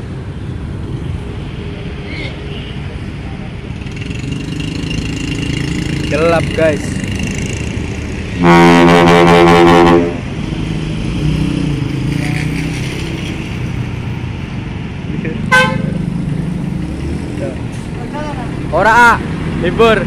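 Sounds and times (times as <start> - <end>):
road traffic: 0.0 - 20.0
bus air horn blast: 8.4 - 10.2, 15.5 - 16.0.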